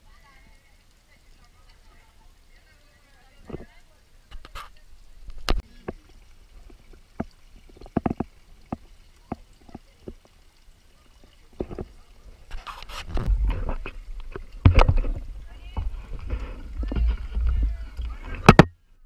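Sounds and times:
wind on microphone: 0:12.5 - 0:18.6.

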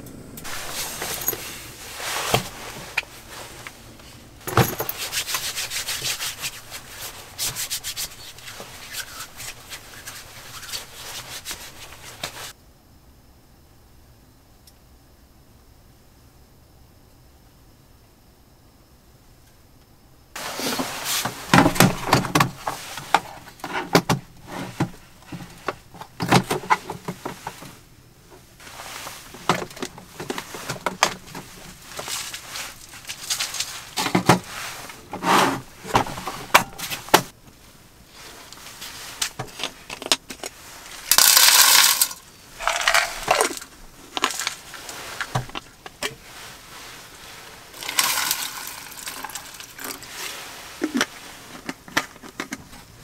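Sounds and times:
water pouring into metal tin: 0:47.8 - 0:50.0.

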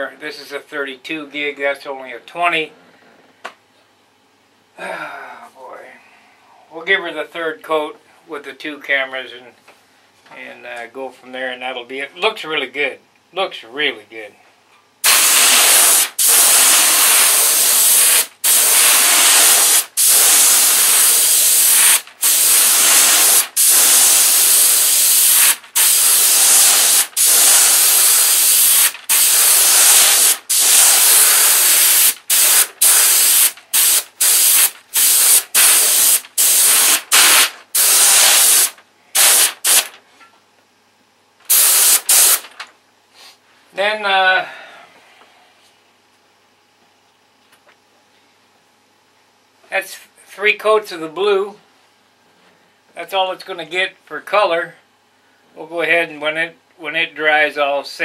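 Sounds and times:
airbrush spraying hiss: 0:15.0 - 0:39.9, 0:41.5 - 0:42.4.

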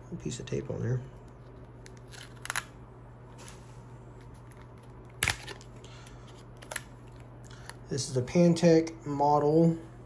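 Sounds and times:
steady low hum: 0:00.0 - 0:10.0
phone packaging clicks and rustles: 0:04.2 - 0:07.8.

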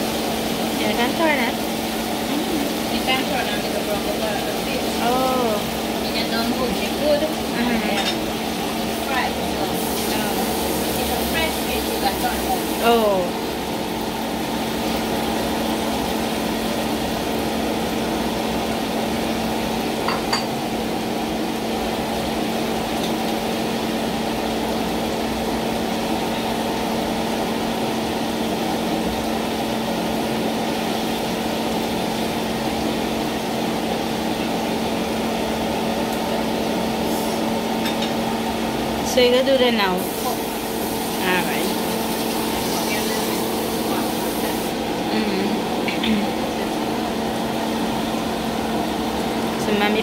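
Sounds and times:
steady hum and hiss: 0:00.0 - 0:50.0
curry simmering in a pan: 0:05.6 - 0:12.8, 0:13.4 - 0:20.1, 0:20.7 - 0:39.0.

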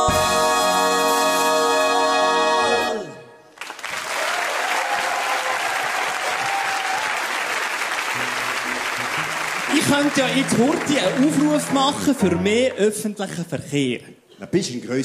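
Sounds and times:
audience applause: 0:03.6 - 0:12.3.

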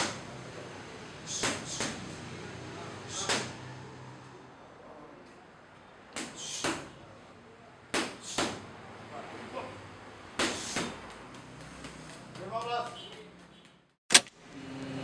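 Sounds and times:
boxing gloves hitting focus mitts: 0:01.3 - 0:02.1, 0:03.1 - 0:03.6, 0:06.1 - 0:07.0, 0:07.9 - 0:08.6, 0:10.4 - 0:13.7.

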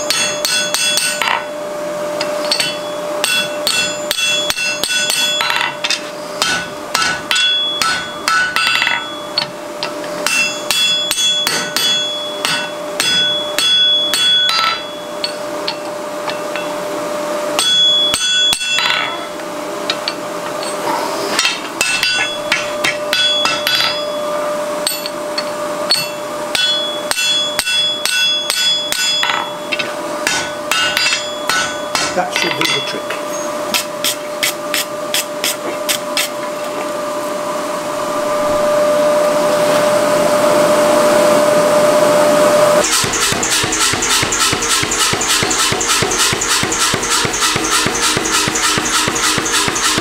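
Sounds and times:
hammer striking metal on anvil: 0:00.0 - 0:01.6, 0:02.2 - 0:16.8, 0:17.5 - 0:36.3, 0:42.8 - 0:50.0
steady hum: 0:00.0 - 0:50.0.

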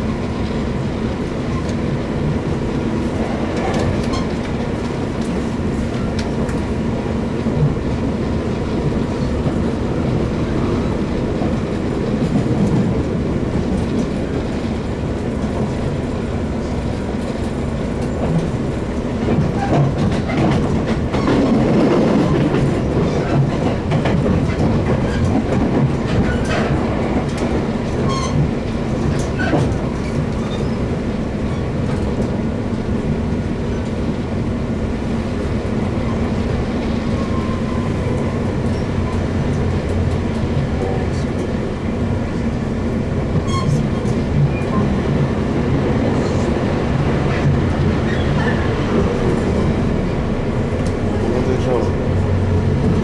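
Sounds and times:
train rumble and hum: 0:00.0 - 0:53.0
wheels clicking over rail joints: 0:17.1 - 0:30.8.

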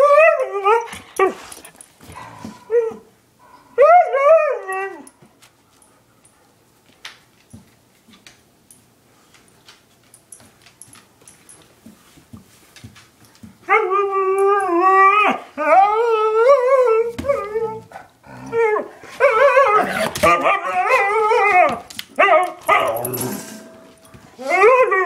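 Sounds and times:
dog howling and whining: 0:00.0 - 0:01.6, 0:02.4 - 0:05.2, 0:13.7 - 0:23.6, 0:24.4 - 0:25.0.

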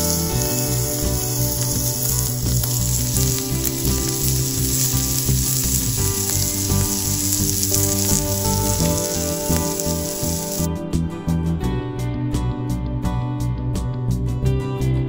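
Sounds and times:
shrimp sizzling on a grill: 0:00.0 - 0:10.7
background music: 0:00.0 - 0:15.0.

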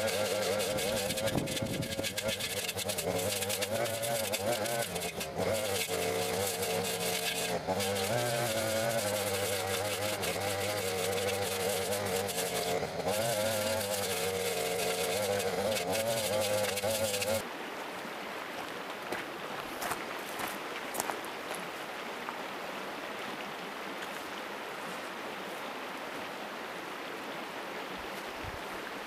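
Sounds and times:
brush cutter engine buzzing: 0:00.0 - 0:17.5.

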